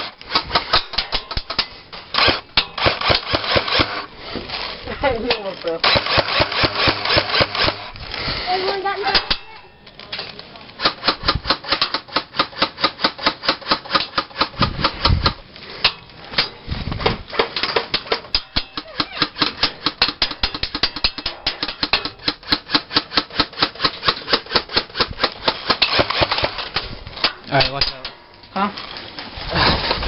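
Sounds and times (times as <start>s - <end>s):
airsoft gun firing: 2.2s - 4.1s, 5.8s - 7.9s, 10.8s - 15.4s, 18.4s - 26.7s.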